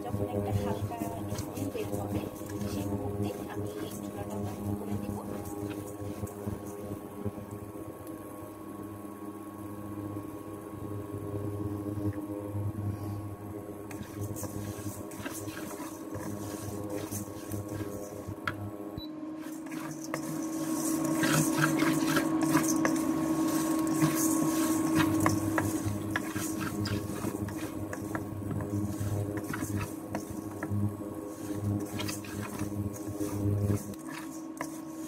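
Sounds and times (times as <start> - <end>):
steady low hum: 0.0 - 35.0
spatula scraping lentils in metal pan: 0.4 - 6.9, 13.9 - 18.6, 19.4 - 35.0.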